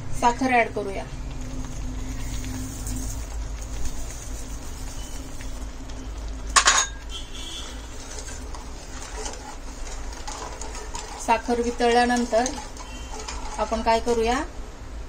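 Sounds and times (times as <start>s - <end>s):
steady low hum: 7.7s - 15.0s.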